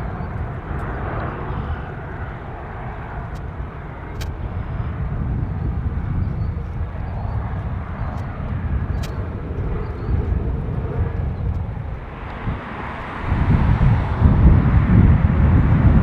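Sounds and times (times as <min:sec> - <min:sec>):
jet engines rumbling: 0:00.0 - 0:16.0.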